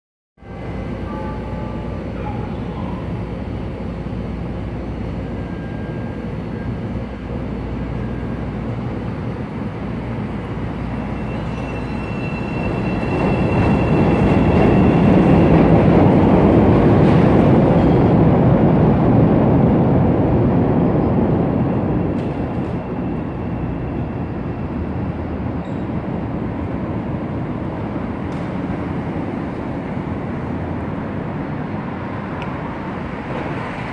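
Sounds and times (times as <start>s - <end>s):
city hum: 0.4s - 33.9s
elevated train rumbling: 0.4s - 33.9s
train wheels squealing: 5.3s - 6.9s, 10.6s - 15.9s, 22.0s - 24.6s, 25.6s - 26.1s.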